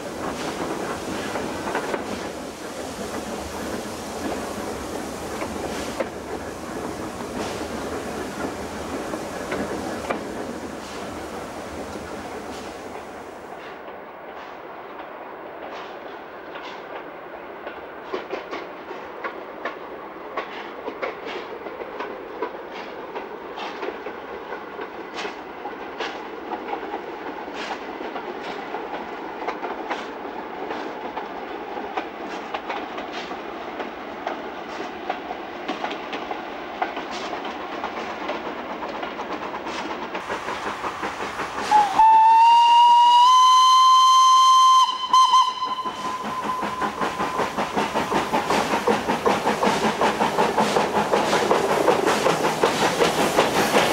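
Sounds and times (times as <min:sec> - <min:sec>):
steam tram running: 0:00.0 - 0:53.9
steam whistle: 0:41.7 - 0:47.0.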